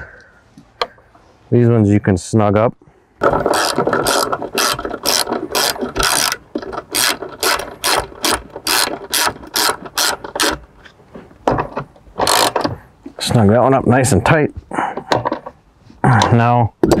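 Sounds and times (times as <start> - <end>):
ratchet wrench clicking: 3.5 - 10.6, 12.2 - 12.6.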